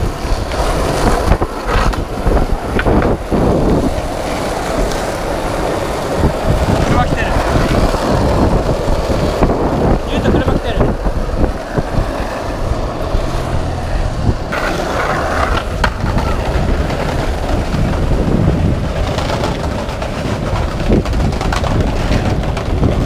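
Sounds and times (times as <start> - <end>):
skateboard wheels rolling on asphalt: 0.0 - 23.0
wind buffeting microphone: 0.0 - 23.0.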